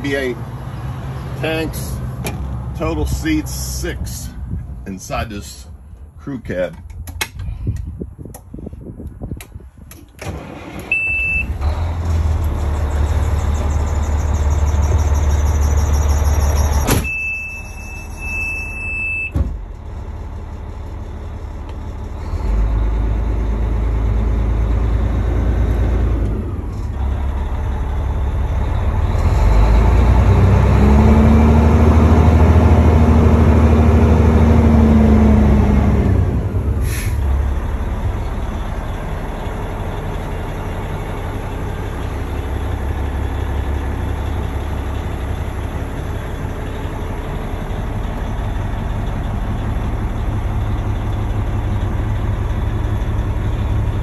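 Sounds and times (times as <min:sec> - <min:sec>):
diesel engine running: 0:00.0 - 0:54.0
high steady beep: 0:10.9 - 0:11.5, 0:17.0 - 0:19.4.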